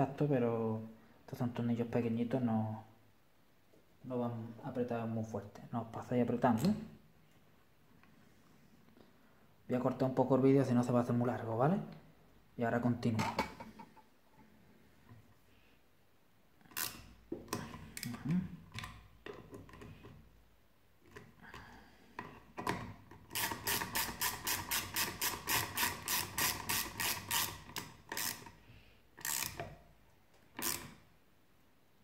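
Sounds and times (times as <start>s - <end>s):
hand ratchet clicking: 16.7s - 18.2s, 23.3s - 28.6s, 29.2s - 29.8s, 30.6s - 31.0s.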